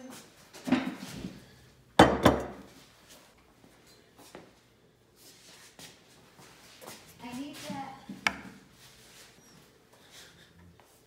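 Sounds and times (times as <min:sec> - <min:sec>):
dishes knocking on wooden table: 0:02.0 - 0:02.6.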